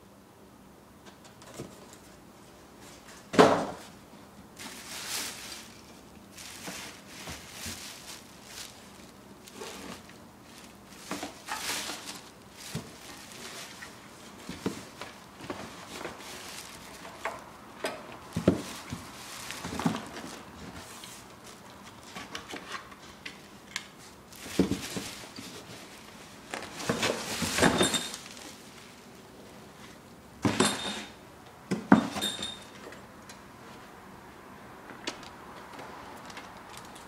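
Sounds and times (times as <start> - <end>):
plastic wrapping crinkling: 4.6 - 17.5, 18.3 - 21.5, 24.3 - 29.1.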